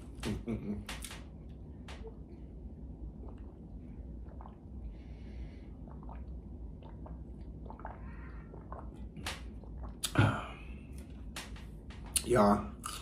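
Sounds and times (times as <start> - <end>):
person chewing: 12.8 - 13.0.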